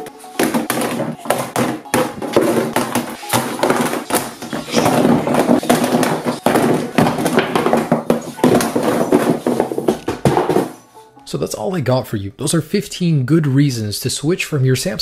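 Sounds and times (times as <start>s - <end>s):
phones and boxes clattering on table: 0.0s - 10.8s.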